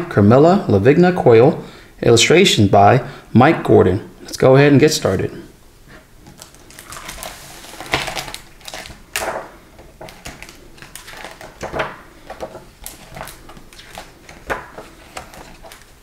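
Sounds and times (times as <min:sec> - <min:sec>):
book pages rustling: 0:05.9 - 0:16.0
sharp page flaps: 0:06.4 - 0:09.5.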